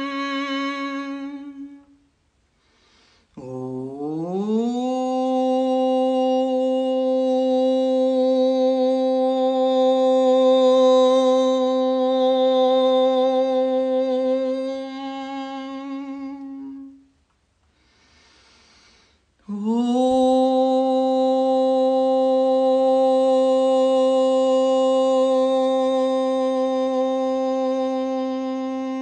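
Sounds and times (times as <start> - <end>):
woman chanting om: 0.0 - 2.1, 3.3 - 17.2, 19.4 - 29.0
woman breathing in: 2.5 - 3.4, 17.6 - 19.3.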